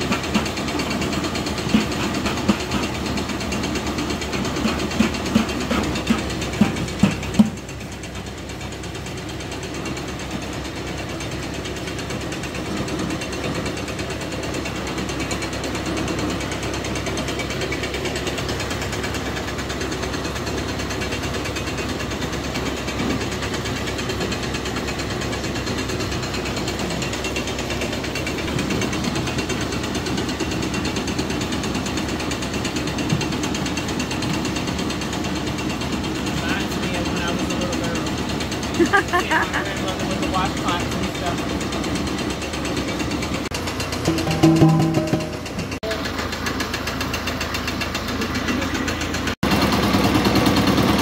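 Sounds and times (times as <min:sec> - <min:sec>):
tractor engine running: 0:00.0 - 0:51.0.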